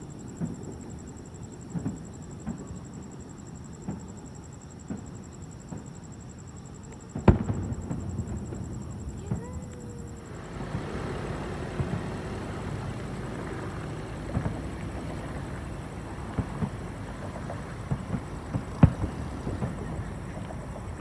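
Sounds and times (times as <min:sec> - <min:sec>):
distant fireworks booming: 0:00.2 - 0:21.0
background rumble: 0:04.8 - 0:21.0.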